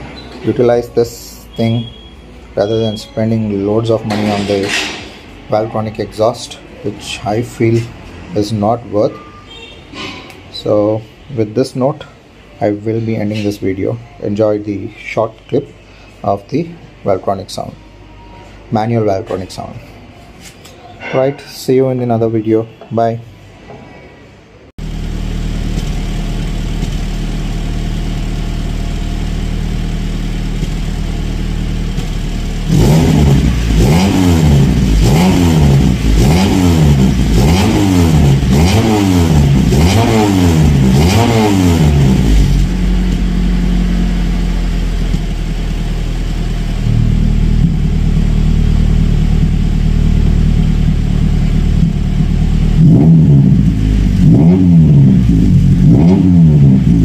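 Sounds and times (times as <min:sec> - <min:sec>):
car engine idling and revving: 0:24.8 - 0:57.0.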